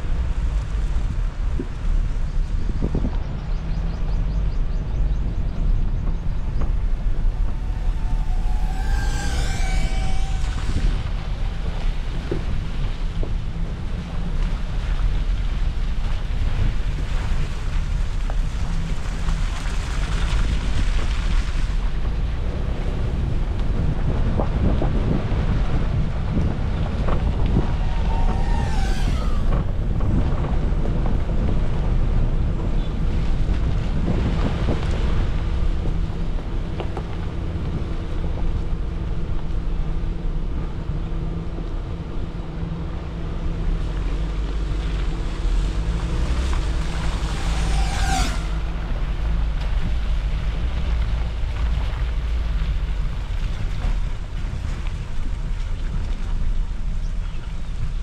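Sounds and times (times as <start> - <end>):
low engine rumble: 0.0 - 58.0
wind buffeting microphone: 0.0 - 58.0
short high squeak: 7.1 - 11.8, 27.6 - 29.7.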